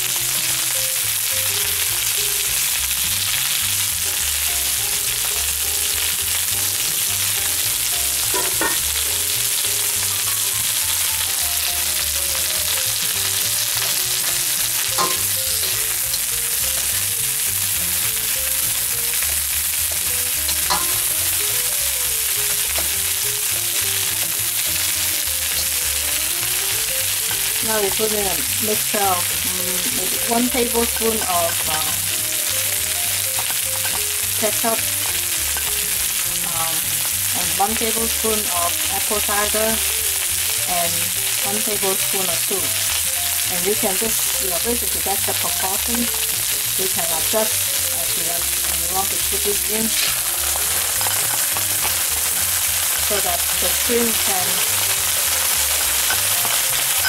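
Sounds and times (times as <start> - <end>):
shrimp sizzling in hot oil: 0.0 - 57.0.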